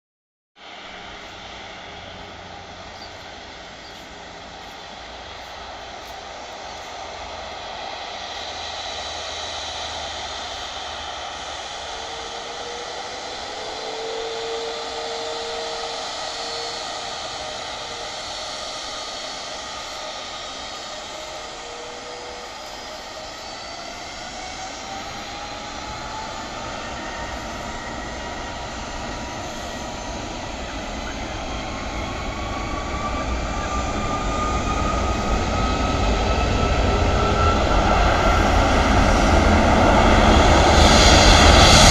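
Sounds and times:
dense rush of engines: 0:00.6 - 0:41.9
jet engine whine: 0:00.6 - 0:41.9.

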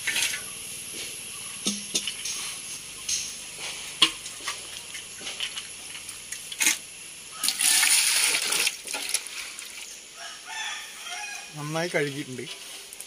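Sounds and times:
sharp clicks and knocks: 0:01.6 - 0:02.4
water gushing into a pot: 0:04.0 - 0:10.0.

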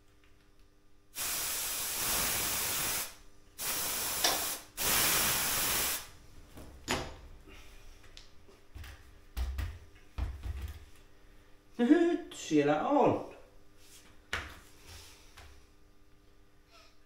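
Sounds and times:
compressed air hissing: 0:01.2 - 0:06.1.

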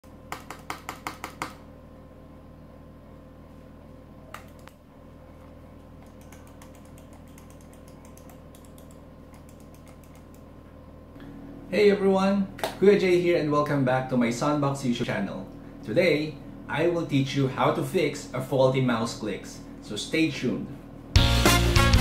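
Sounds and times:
mouse buttons clicking: 0:06.0 - 0:10.4.

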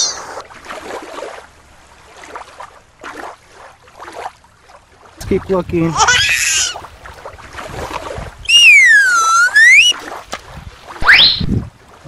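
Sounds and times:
short warbling rising sound: 0:08.5 - 0:09.9, 0:11.0 - 0:11.6
cartoon whistle gliding tone: 0:08.5 - 0:10.0, 0:11.0 - 0:11.5.

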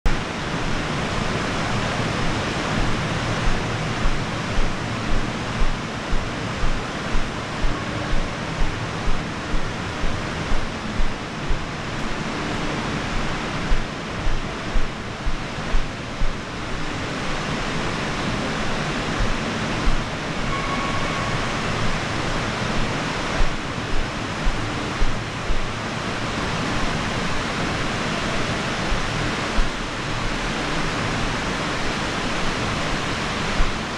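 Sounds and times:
rushing water hiss: 0:00.1 - 0:33.9
footsteps climbing stairs: 0:02.8 - 0:12.2, 0:13.2 - 0:16.4.

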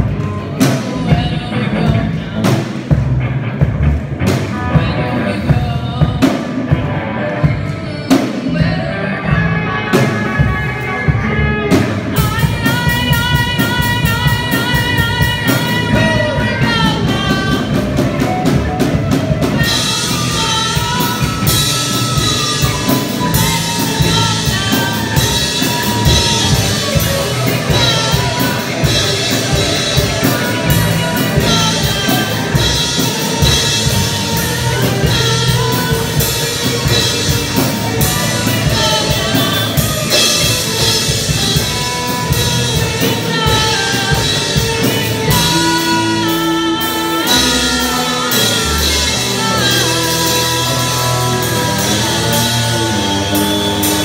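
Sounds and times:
drum kit: 0:00.0 - 0:54.0
electric guitars: 0:00.0 - 0:54.0
cymbals: 0:12.2 - 0:54.0.

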